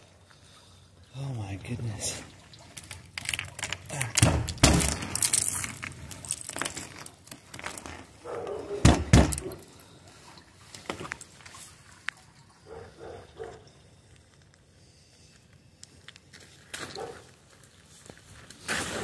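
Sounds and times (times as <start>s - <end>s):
ice cracking on plastic lid: 2.8s - 7.9s.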